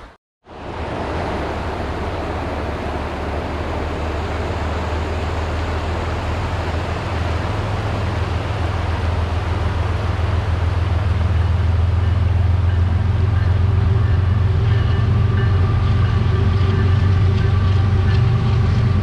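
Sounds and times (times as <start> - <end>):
freight train rushing noise: 0.0 - 19.0
locomotive engine drone: 0.0 - 19.0.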